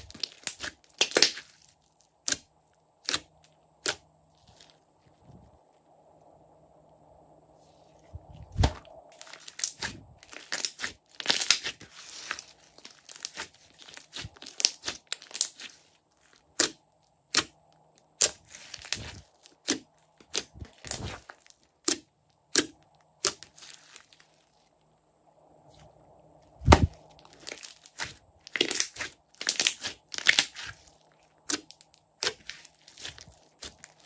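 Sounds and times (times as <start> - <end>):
slime sticky pops and crackles: 0.1 - 1.5, 16.6 - 21.0, 26.6 - 30.8.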